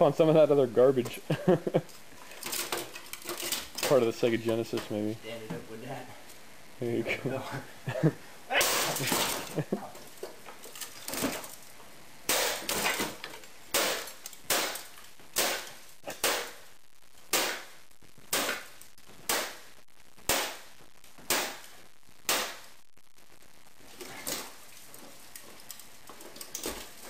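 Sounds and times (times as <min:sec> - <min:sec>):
debris rattling: 0:01.9 - 0:04.3, 0:08.5 - 0:16.7, 0:23.9 - 0:27.0
metal bat smashing electronics: 0:08.6 - 0:09.6, 0:12.2 - 0:16.6, 0:17.3 - 0:19.6, 0:20.3 - 0:20.7.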